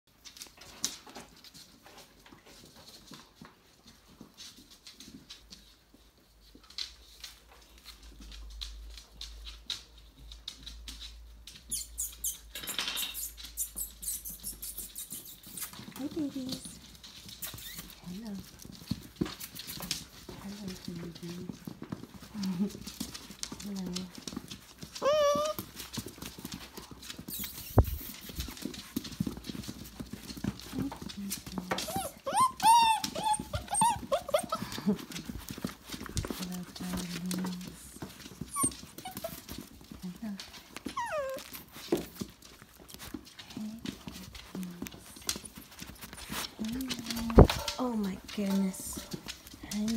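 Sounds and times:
dog claws clicking on wooden floor: 0.2 - 49.9
puppy squeal: 11.7 - 15.7, 17.4 - 18.0, 25.0 - 25.7, 27.3 - 28.1, 31.8 - 34.8, 38.4 - 39.5, 40.8 - 41.6
short high squeaks: 11.7 - 15.7, 17.4 - 17.9.

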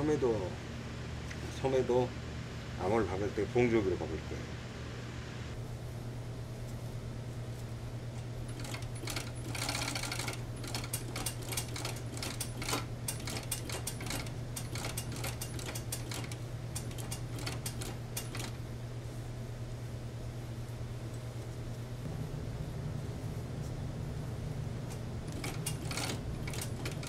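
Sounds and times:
sewing machine motor hum: 8.4 - 18.6, 24.9 - 27.0
sewing machine needle clatter: 8.5 - 18.6, 25.3 - 27.0.

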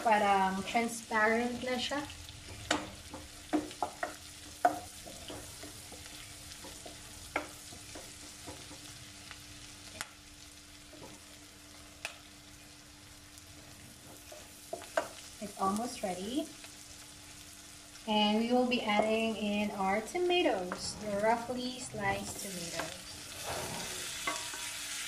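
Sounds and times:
onions sizzling in a pan: 0.0 - 25.0
spatula scraping a pan: 20.5 - 25.0.

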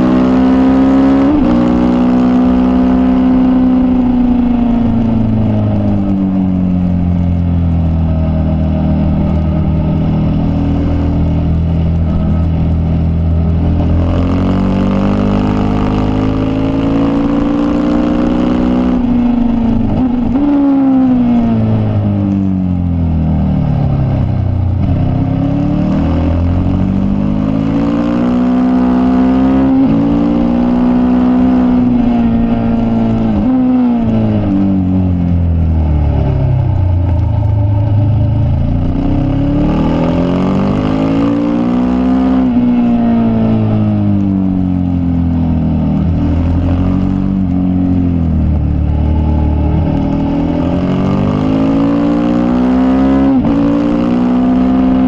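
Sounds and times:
racing motorcycle engine: 0.0 - 55.0.

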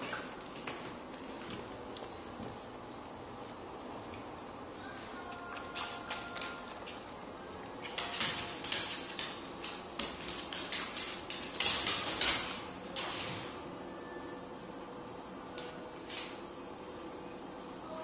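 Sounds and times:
dog claws clicking on wooden floor: 5.5 - 7.2, 7.8 - 13.5.

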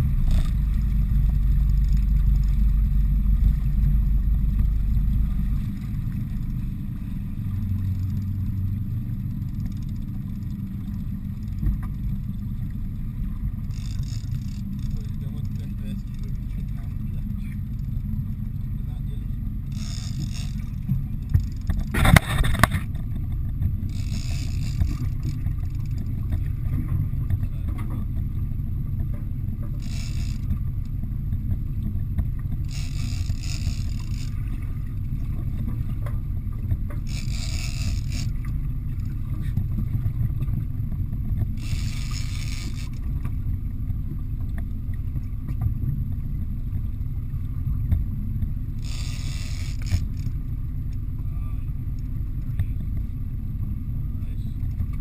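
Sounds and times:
boat engine rumble: 0.0 - 55.0
brief clatter: 19.8 - 23.3.

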